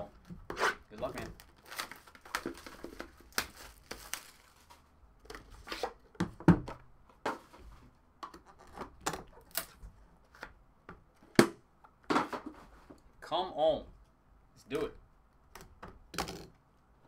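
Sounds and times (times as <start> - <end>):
plastic wrap tearing and crinkling: 1.1 - 4.9.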